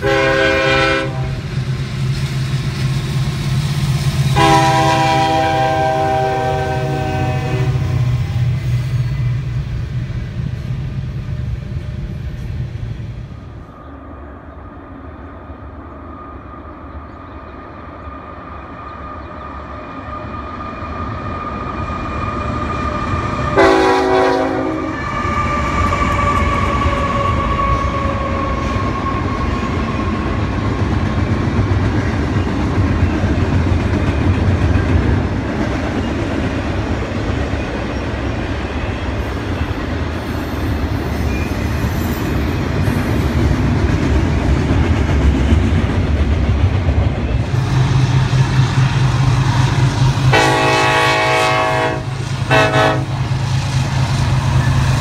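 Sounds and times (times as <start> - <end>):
locomotive horn: 0.0 - 1.5, 4.3 - 8.4, 23.6 - 29.0, 50.3 - 53.3
freight cars rumbling over bridge: 0.0 - 55.0.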